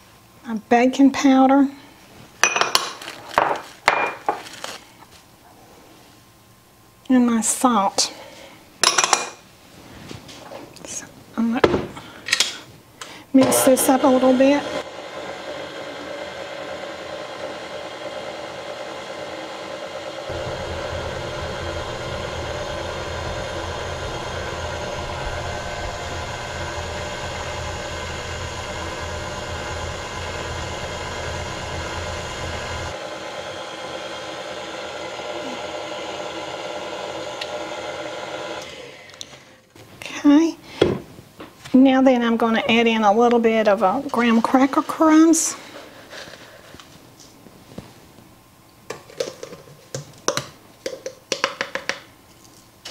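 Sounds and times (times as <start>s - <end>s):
stand mixer running: 13.4s - 39.2s.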